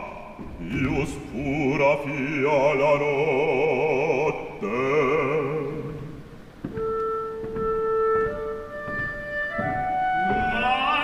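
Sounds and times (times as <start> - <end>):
bass voice singing: 0.0 - 6.1
person singing: 0.0 - 6.2, 10.1 - 11.0
orchestra playing softly: 6.7 - 11.0.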